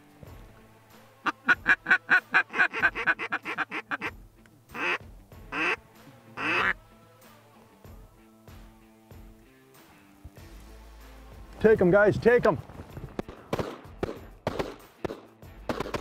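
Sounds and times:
duck call quacks: 1.2s - 4.1s, 4.7s - 5.8s, 6.4s - 6.8s.

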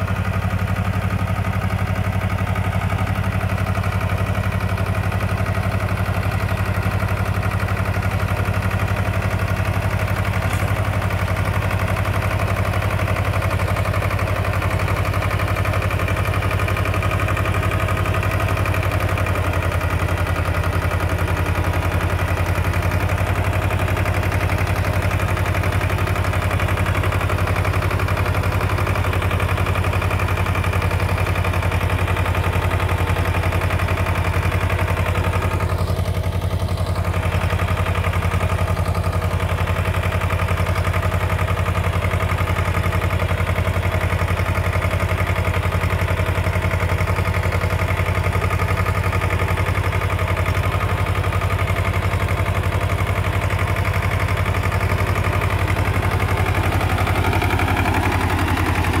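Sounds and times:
tractor engine idling: 0.0s - 59.0s.

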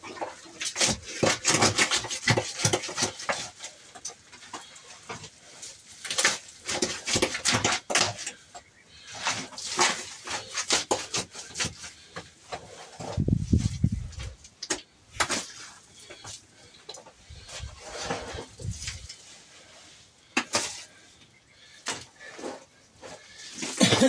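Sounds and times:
soil spilling: 0.0s - 24.0s
shovel scraping hard floor: 0.7s - 3.6s, 17.6s - 19.0s.

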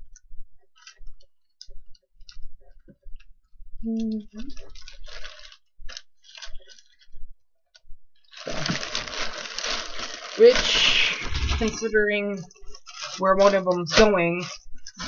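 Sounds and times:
plastic bag crinkling: 4.4s - 7.2s, 8.2s - 15.0s.

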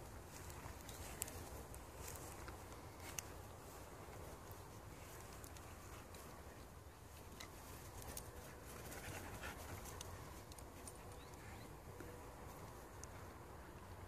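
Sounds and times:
light ticks: 0.4s - 6.4s.

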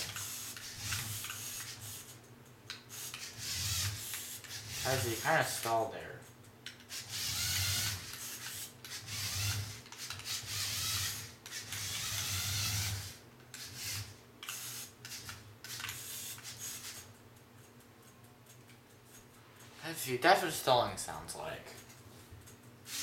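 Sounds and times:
toy car electric motors whirring: 0.0s - 5.9s, 6.7s - 17.8s, 21.8s - 23.0s.

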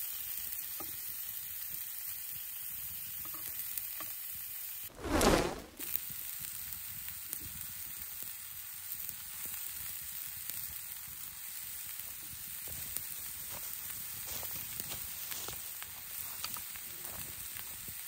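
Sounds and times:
vegetables sizzling in a skillet: 0.0s - 18.0s
small pops and crackles: 5.8s - 18.0s.

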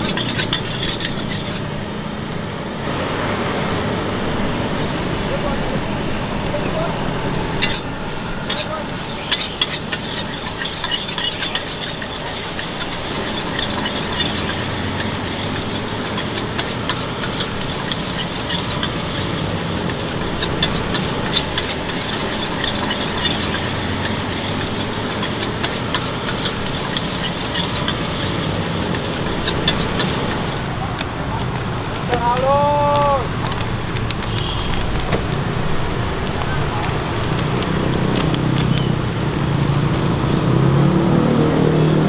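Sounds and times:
metal spatula scraping a wok: 0.0s - 2.0s, 7.5s - 30.8s
gas burner hissing: 0.0s - 40.5s
rice sizzling: 0.0s - 41.0s.

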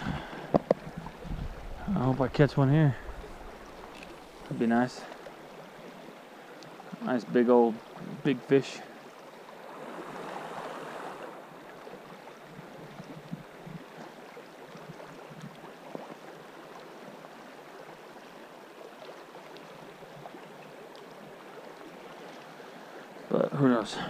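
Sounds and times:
faint clicks: 3.8s - 4.5s
river rushing over riffle: 9.5s - 11.8s.

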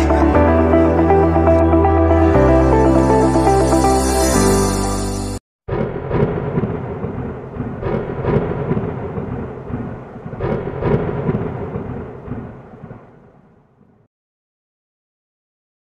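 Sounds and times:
electronic music: 0.0s - 5.4s
thunder cracks: 5.7s - 14.0s.

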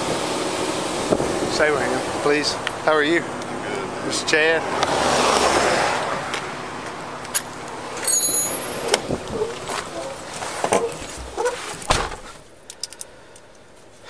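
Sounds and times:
road noise: 0.0s - 14.0s
car door thump shutting: 10.6s - 12.4s.

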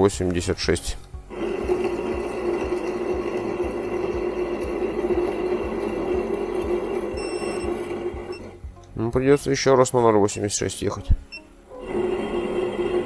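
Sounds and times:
lathe motor and gear hum: 1.2s - 8.6s, 11.7s - 13.0s.

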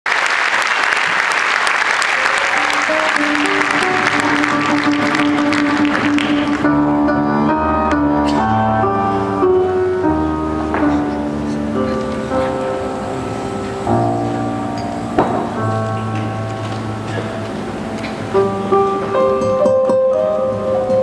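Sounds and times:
audience applauding: 0.0s - 6.9s
slow instrumental music: 2.2s - 21.0s.

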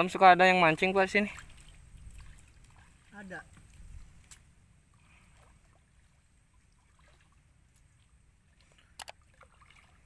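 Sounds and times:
small clicks: 9.0s - 9.2s.

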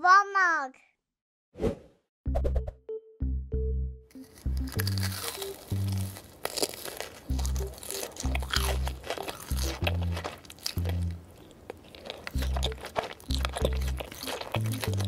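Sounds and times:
background music with bass notes: 2.3s - 6.2s, 7.3s - 11.2s, 12.4s - 15.0s
crunching bites of batter crust: 4.1s - 15.0s.

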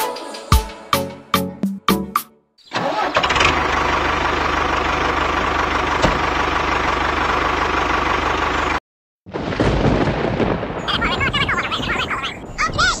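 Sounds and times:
tractor engine running: 2.7s - 8.8s
rumbling sound: 9.3s - 13.0s.

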